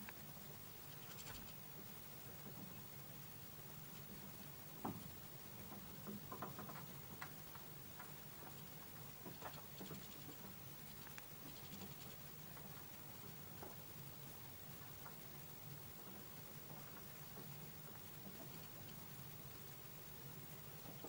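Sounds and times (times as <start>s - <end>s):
birds pecking at seeds: 0.0s - 21.0s.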